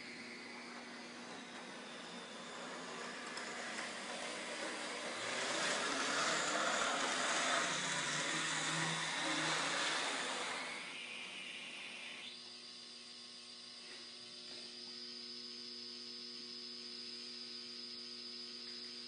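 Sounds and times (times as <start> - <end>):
model train motor whirring: 0.0 - 12.5.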